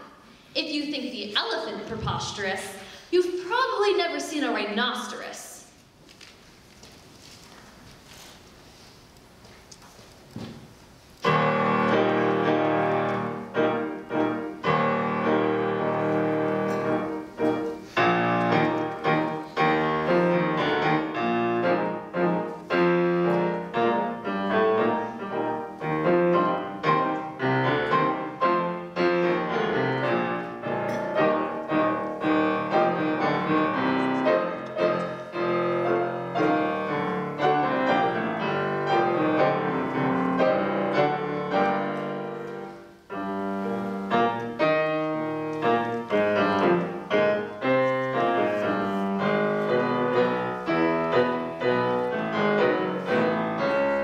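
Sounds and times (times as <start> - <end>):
pianos playing chords: 11.2 - 54.0.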